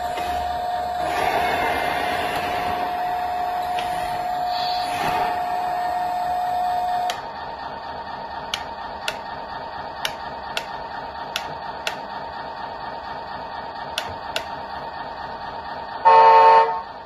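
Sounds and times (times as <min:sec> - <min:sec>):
buzzy simulated engine sound: 0:00.0 - 0:11.7
loud honk: 0:16.1 - 0:16.8.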